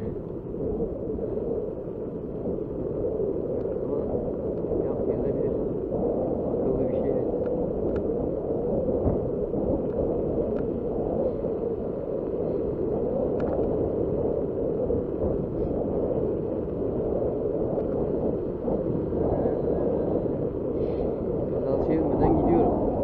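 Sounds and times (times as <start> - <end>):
faint ticks: 0.0 - 3.8, 4.4 - 4.8, 7.3 - 19.8
bike tyres rolling: 0.0 - 23.0
wind on microphone: 0.0 - 23.0.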